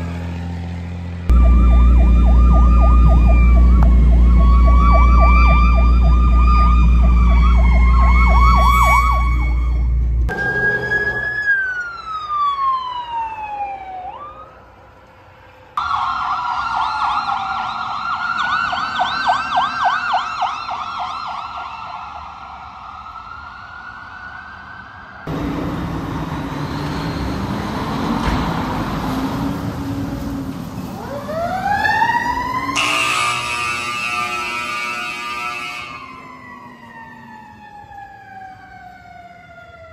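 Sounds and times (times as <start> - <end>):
engine and road noise: 0.0 - 39.9
siren winding up: 1.3 - 14.3
electronic siren wailing and yelping: 1.3 - 14.5, 15.8 - 22.1
siren falling in pitch: 1.3 - 14.6, 15.8 - 22.4, 31.0 - 39.9.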